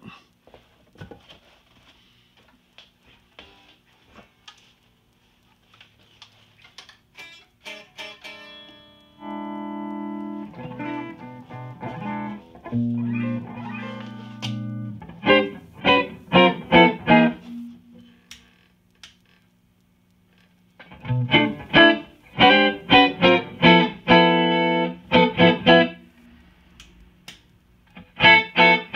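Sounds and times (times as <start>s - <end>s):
electric guitar through amplifier: 6.1s - 28.9s.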